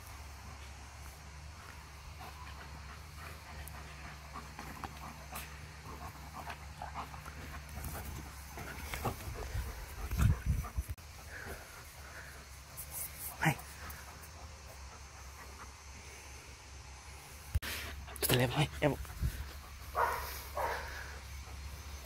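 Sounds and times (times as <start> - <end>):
dog panting: 1.6 - 16.3, 17.6 - 22.0
dog noises: 17.8 - 22.0.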